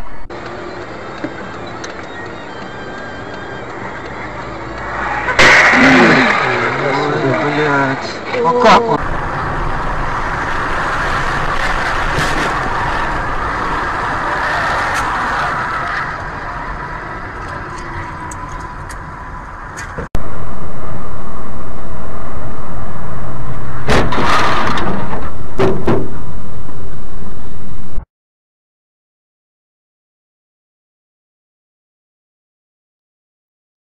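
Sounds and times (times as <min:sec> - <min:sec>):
vehicle road noise: 0:00.0 - 0:28.0
distorted wind rushing noise: 0:09.0 - 0:28.0
sharp knocks: 0:23.9 - 0:26.2.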